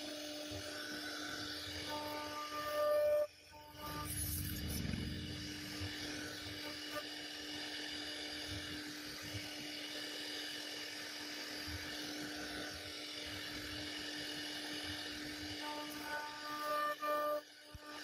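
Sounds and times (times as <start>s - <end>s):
router spindle whine: 0.0s - 18.0s.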